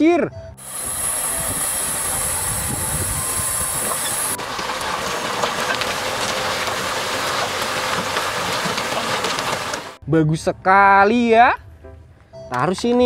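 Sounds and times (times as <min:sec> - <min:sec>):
high hiss: 0:00.6 - 0:04.5
soil pouring out: 0:00.6 - 0:10.0.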